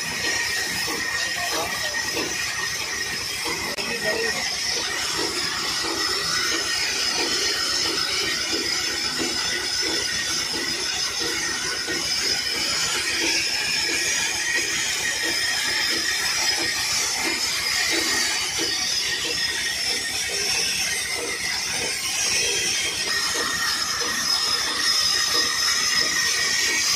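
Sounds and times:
band saw cutting log: 0:00.0 - 0:26.9.

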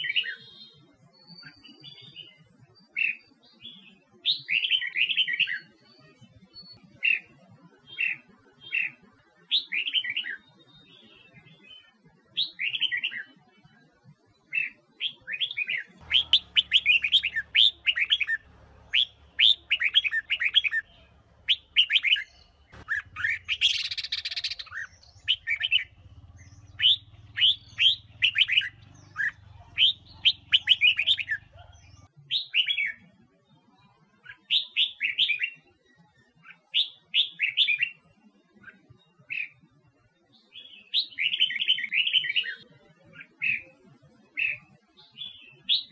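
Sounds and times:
bird singing whistled phrases: 0:14.6 - 0:33.0
low hum: 0:16.0 - 0:32.0.

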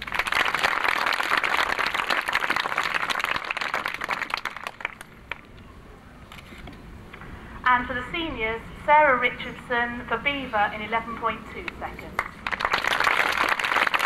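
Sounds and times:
audience applauding: 0:00.0 - 0:05.4, 0:12.2 - 0:14.0.

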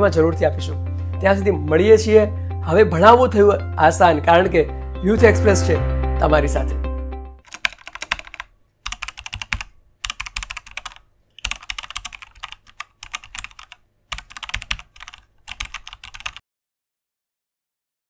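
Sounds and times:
keyboard key clicks: 0:07.5 - 0:16.4.

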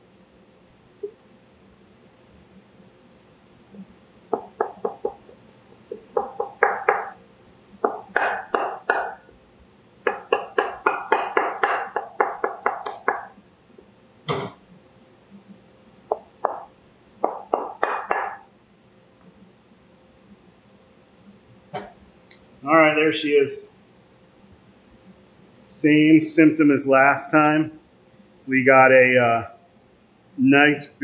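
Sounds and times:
mallet tapping on metal: 0:10.1 - 0:13.3.

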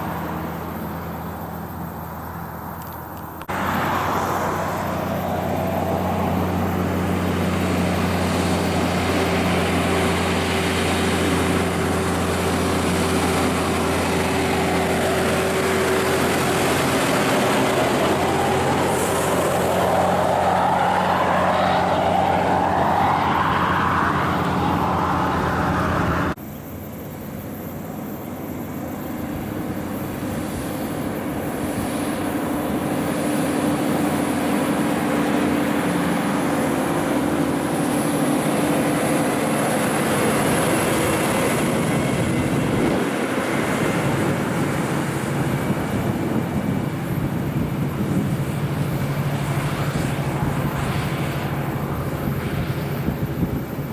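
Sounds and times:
diesel truck approaching: 0:00.0 - 0:53.9
diesel truck passing: 0:03.3 - 0:26.4, 0:29.4 - 0:53.9
rising and falling whine: 0:03.5 - 0:26.4.

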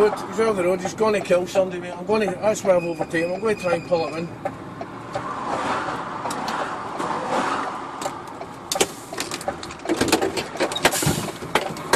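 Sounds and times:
lorry road and engine rumble: 0:00.0 - 0:11.9
sharp clicks and rattling knocks: 0:08.0 - 0:11.9.

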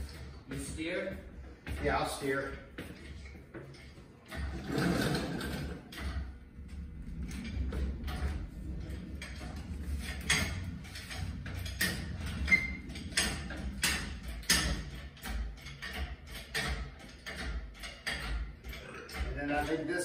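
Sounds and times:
clicks and knocks of hand work: 0:00.0 - 0:20.0
low steady hum: 0:00.0 - 0:20.0.

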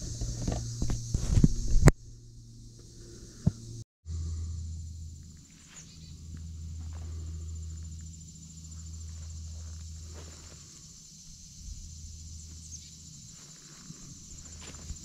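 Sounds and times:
low rumble: 0:00.0 - 0:13.2
high-pitched insect trill: 0:00.0 - 0:15.0
footsteps through undergrowth: 0:05.4 - 0:15.0.

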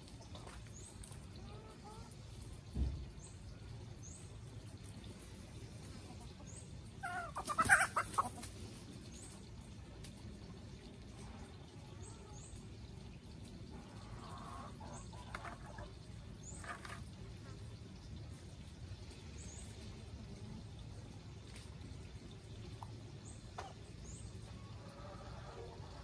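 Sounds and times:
chickens clucking: 0:00.0 - 0:03.1, 0:04.6 - 0:09.4, 0:11.2 - 0:17.7, 0:22.7 - 0:26.0
chicken calling: 0:07.0 - 0:08.4.

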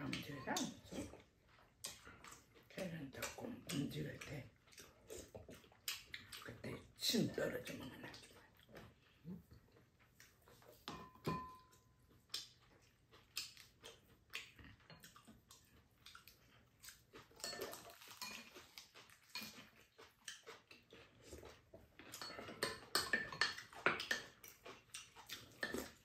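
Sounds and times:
utensils clinking on ceramic bowls: 0:00.0 - 0:01.1, 0:10.8 - 0:11.9, 0:17.4 - 0:18.7, 0:22.0 - 0:24.6.

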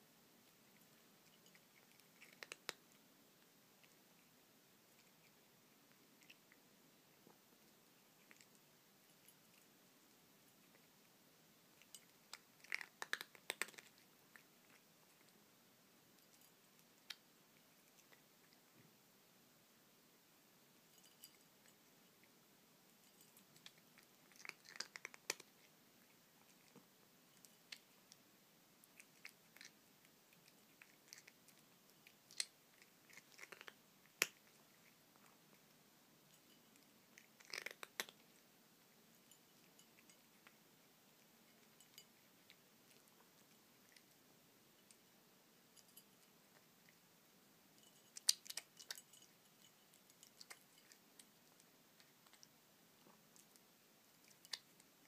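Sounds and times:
cat crunching dry kibble: 0:01.2 - 0:03.0, 0:11.8 - 0:15.4, 0:23.3 - 0:26.8, 0:28.8 - 0:35.7, 0:36.3 - 0:38.4, 0:48.0 - 0:55.0.

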